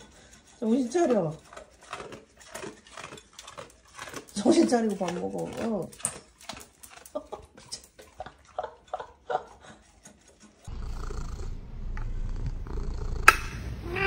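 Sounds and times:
dog crunching dry kibble: 0.6 - 8.6
cat purring: 10.7 - 13.3.

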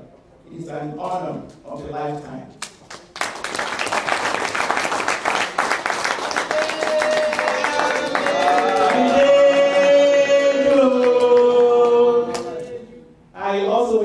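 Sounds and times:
audience applauding: 2.8 - 12.5.

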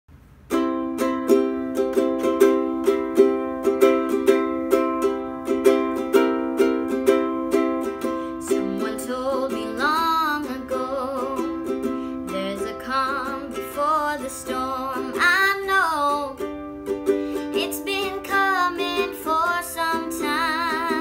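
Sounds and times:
ukulele strumming: 0.4 - 21.0
young woman singing: 8.0 - 16.6, 17.3 - 21.0.

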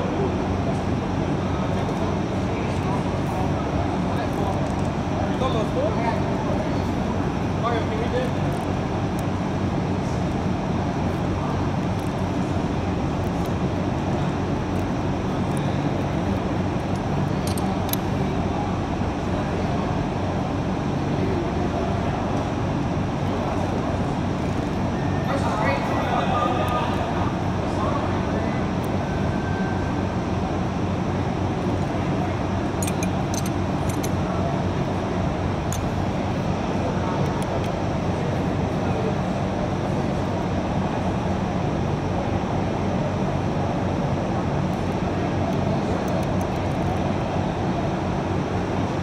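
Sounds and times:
shop machinery humming: 0.0 - 49.0
metallic clicks of hand tools: 32.8 - 34.1.

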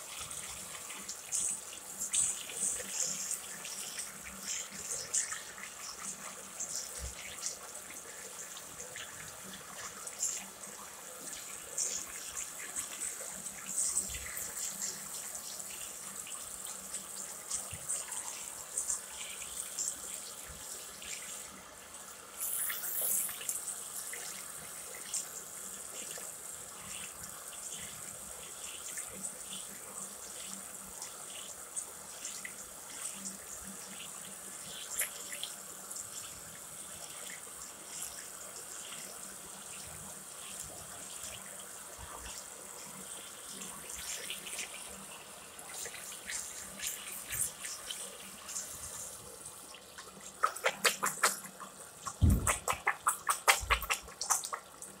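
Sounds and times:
tap water running into basin: 0.0 - 55.0
water splashing over hand: 50.4 - 54.6.

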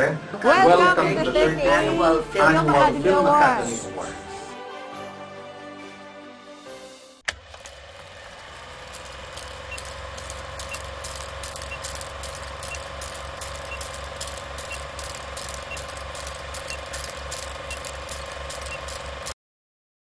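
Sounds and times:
film projector clatter: 7.3 - 19.4
steady hum: 7.3 - 19.4.

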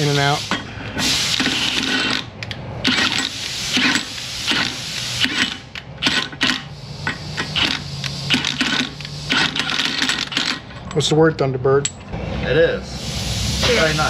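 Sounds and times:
impact wrench bursts: 0.0 - 10.8.

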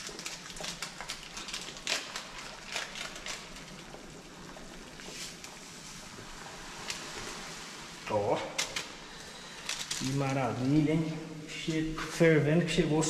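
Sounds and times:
sachet crinkling and tearing: 0.0 - 4.1, 9.6 - 10.3
water boiling in a pot: 0.0 - 13.0.

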